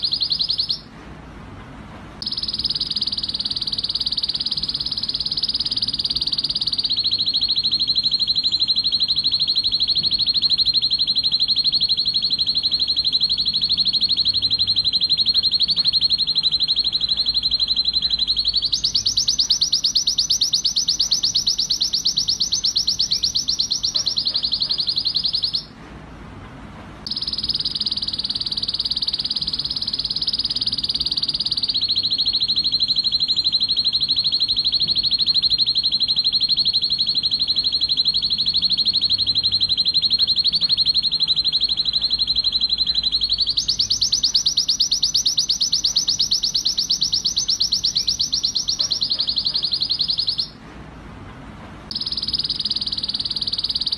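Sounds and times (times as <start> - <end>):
canary singing rapid trills: 0.0 - 0.9, 2.2 - 25.7, 27.1 - 50.6, 51.9 - 53.9.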